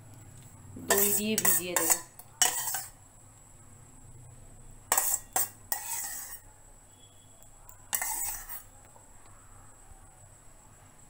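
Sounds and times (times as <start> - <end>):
spoon scraping and clinking bowl: 0.8 - 3.0, 4.9 - 6.5, 7.9 - 8.7.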